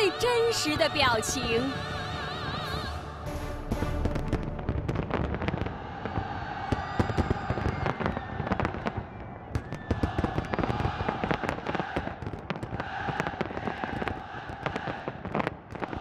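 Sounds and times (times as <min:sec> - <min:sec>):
fireworks bangs and crackles: 0:00.0 - 0:16.0
fireworks whistles: 0:05.0 - 0:12.1.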